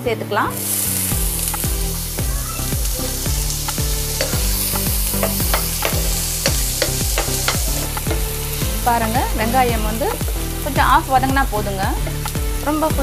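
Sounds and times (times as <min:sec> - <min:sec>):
onions sizzling in oil: 0:00.5 - 0:13.0
spatula scraping a pan: 0:02.2 - 0:08.9.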